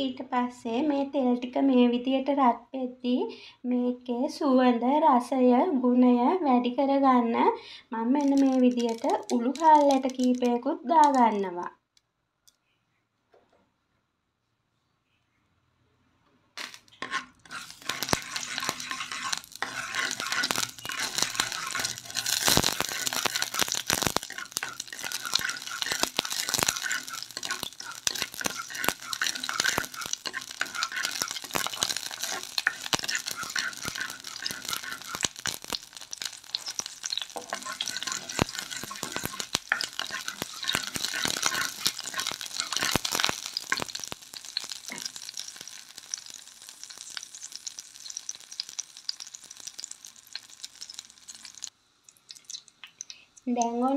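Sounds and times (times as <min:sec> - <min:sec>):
seeds sizzling in hot oil: 0:07.6 - 0:11.4, 0:16.6 - 0:53.9
wooden spoon scraping pot: 0:08.2 - 0:11.2, 0:16.6 - 0:45.3.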